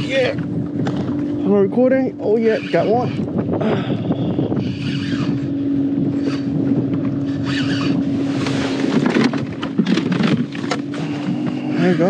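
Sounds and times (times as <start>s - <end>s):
wind buffeting microphone: 0.0s - 12.0s
clicks and knocks of gear: 8.9s - 11.0s.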